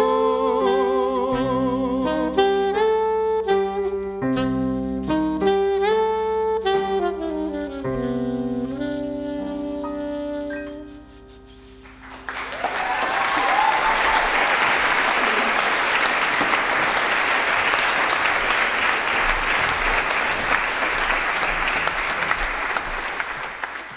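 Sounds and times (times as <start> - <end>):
audience applause: 11.8 - 23.9.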